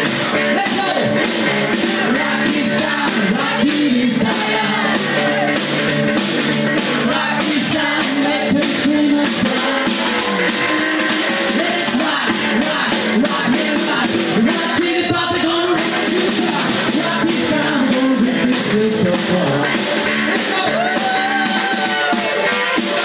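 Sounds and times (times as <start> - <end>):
electric guitar: 0.0 - 23.0
man singing: 2.0 - 5.6, 6.9 - 10.5, 11.4 - 22.4
snare drum: 15.8 - 23.0.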